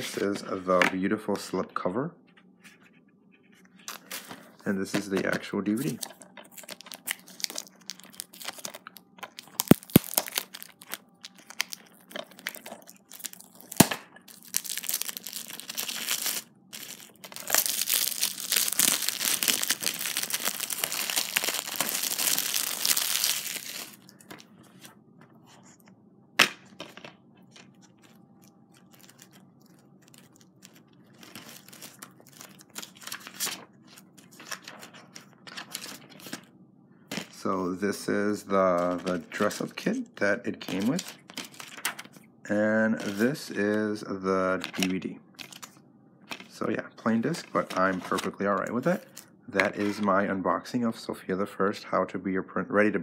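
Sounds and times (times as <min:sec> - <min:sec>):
quiet rustling and handling: 0:00.0 - 0:09.6, 0:10.2 - 0:26.0, 0:26.7 - 0:36.5, 0:37.1 - 0:50.4
plastic wrapping crinkling: 0:05.7 - 0:24.9, 0:27.4 - 0:36.5, 0:40.6 - 0:42.2.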